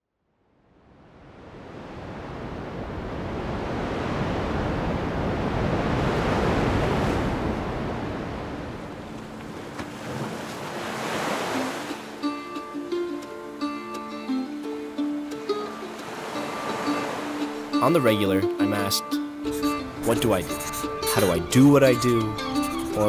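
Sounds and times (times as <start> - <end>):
waves breaking: 1.0 - 23.0.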